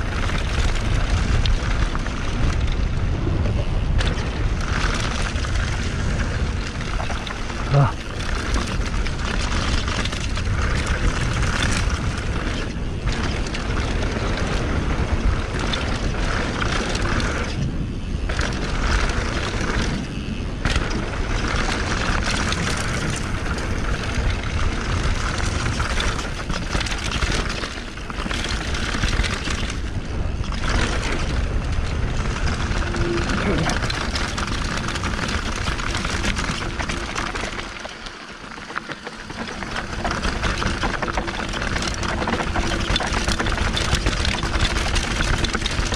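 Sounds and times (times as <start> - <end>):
tyres rolling over loose dirt: 0.0 - 45.9
wind buffeting microphone: 0.0 - 45.9.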